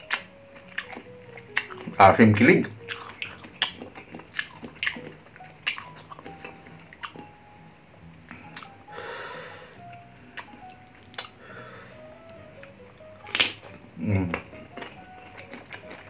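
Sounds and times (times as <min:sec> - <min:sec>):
mouth chewing with wet squishing: 0:00.0 - 0:07.5, 0:08.3 - 0:08.8, 0:09.8 - 0:11.4, 0:12.2 - 0:16.0
light background music: 0:00.0 - 0:16.0
noisy crunch: 0:12.6 - 0:16.0.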